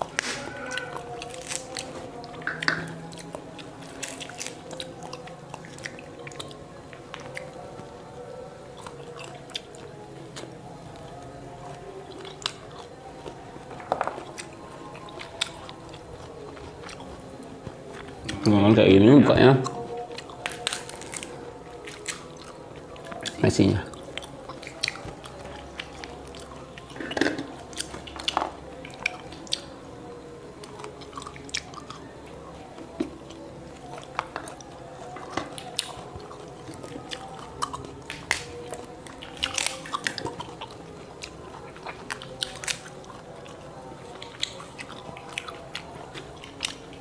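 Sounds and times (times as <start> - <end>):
fruit shells cracking: 0.0 - 7.4, 13.2 - 18.5, 19.7 - 22.4, 32.8 - 43.0
chewing and biting fruit: 0.0 - 18.7, 19.3 - 47.0.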